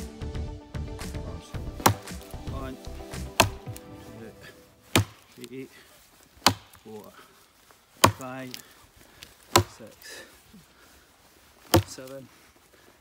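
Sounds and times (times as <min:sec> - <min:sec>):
background music: 0:00.0 - 0:05.4
axe chopping branch: 0:01.6 - 0:03.9, 0:04.9 - 0:05.5, 0:06.4 - 0:07.1, 0:08.0 - 0:10.0, 0:11.6 - 0:12.2.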